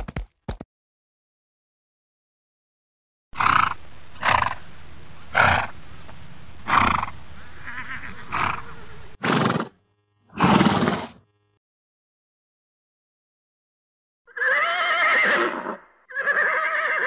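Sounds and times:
horse snorting: 9.2 - 11.2.

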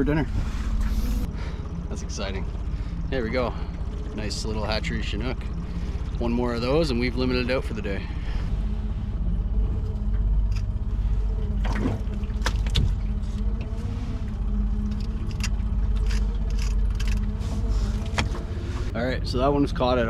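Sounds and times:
outboard motor running: 0.0 - 20.0.

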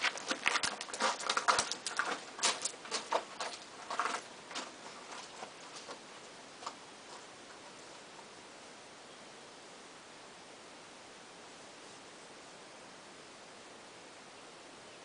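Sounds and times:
footsteps crunching on gravel: 0.0 - 7.3.

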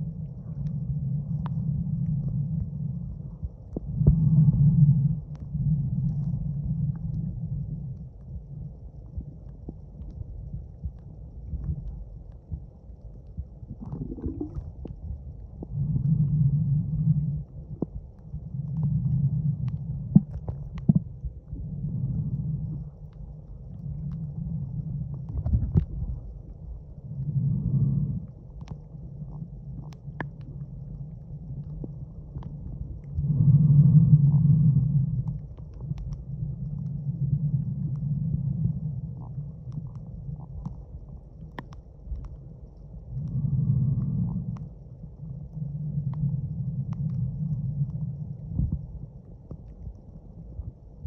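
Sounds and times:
muffled underwater water rumble: 0.0 - 51.0
sharp clicks and crackles: 35.1 - 43.4.

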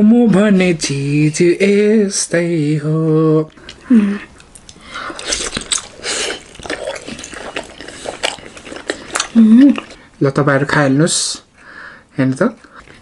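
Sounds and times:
people chewing and smacking: 3.4 - 10.1, 12.6 - 13.0.

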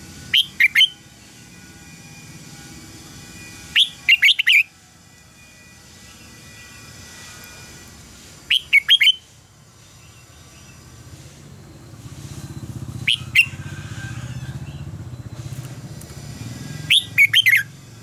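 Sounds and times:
bird singing whistled notes: 0.3 - 1.0, 3.7 - 4.7, 8.5 - 11.9, 12.6 - 13.7, 16.6 - 17.8.

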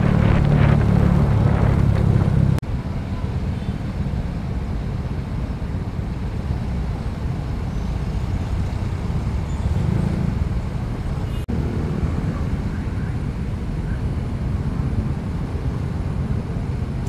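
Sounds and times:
motorcycle engine rumble: 0.0 - 17.0
road noise: 0.0 - 17.0
wind noise: 0.0 - 17.0.

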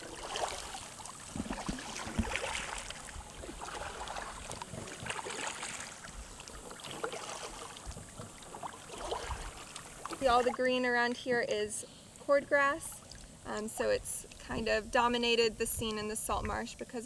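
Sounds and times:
small splashes: 0.0 - 10.8
kayak paddles swishing through water: 0.0 - 11.1
water lapping: 0.0 - 11.5, 12.1 - 14.8.

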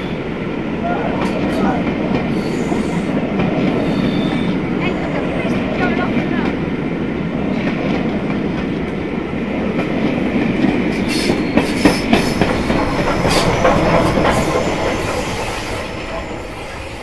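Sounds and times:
steam locomotive rolling past: 0.0 - 17.0
train wheels clattering over rail joints: 7.4 - 17.0.

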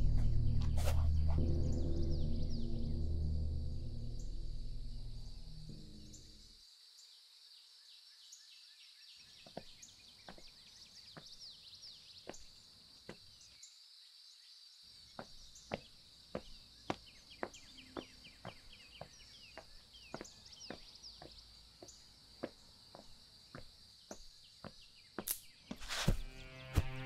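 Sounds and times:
footsteps on pavement: 9.4 - 11.4, 12.2 - 13.3, 15.1 - 27.0
falling bird chirps: 15.0 - 27.0
high insect buzz: 20.1 - 27.0.

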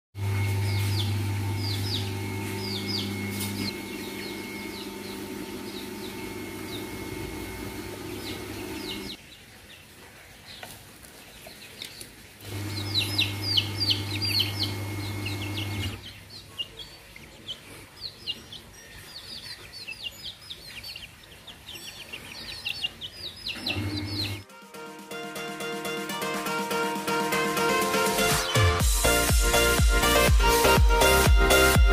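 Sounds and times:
chicks peeping: 0.2 - 24.4.

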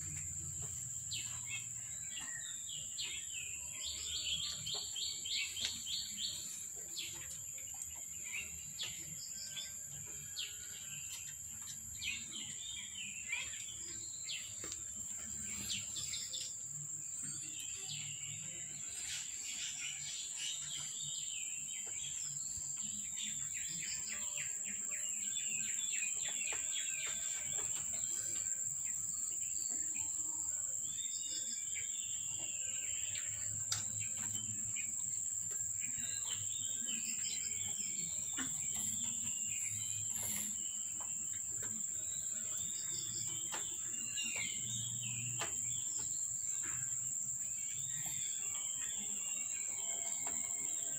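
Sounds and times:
birds chirping: 0.0 - 50.9
insect drone: 11.6 - 50.9.

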